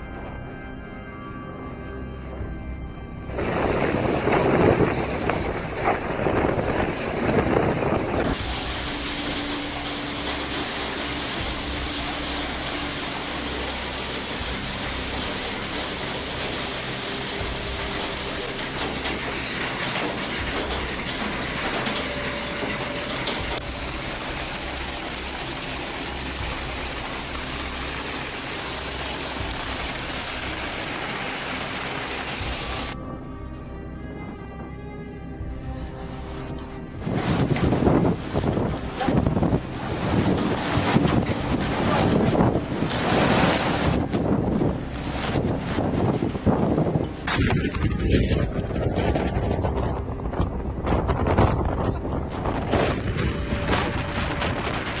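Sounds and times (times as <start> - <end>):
hail and rain clattering: 3.4 - 33.0.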